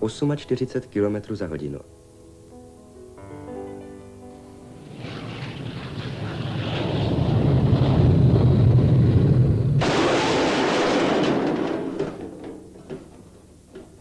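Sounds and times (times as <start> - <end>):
car crashing into barrier: 9.8 - 12.9
small knocks: 11.5 - 14.0.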